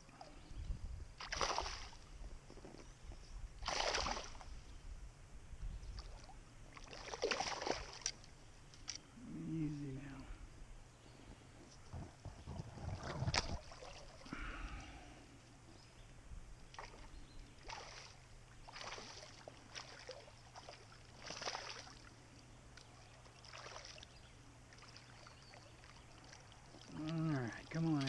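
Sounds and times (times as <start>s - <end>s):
fish splashing at water surface: 1.2s - 2.0s, 3.6s - 4.4s, 6.8s - 8.2s, 16.8s - 22.0s, 23.3s - 24.1s
water lapping: 3.6s - 4.5s, 6.0s - 8.3s, 12.4s - 15.1s, 16.7s - 28.0s.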